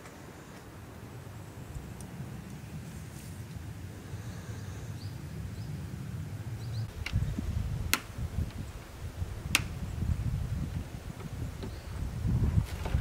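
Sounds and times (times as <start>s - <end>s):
sharp clicks or knocks: 9.5s - 9.8s.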